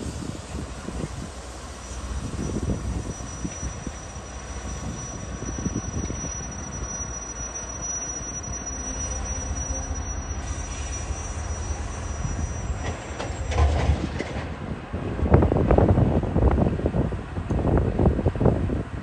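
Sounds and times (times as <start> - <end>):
wind buffeting microphone: 0.0 - 6.8, 11.5 - 19.0
locomotive engine rumble: 0.0 - 19.0
high-pitched squeal: 1.8 - 13.9.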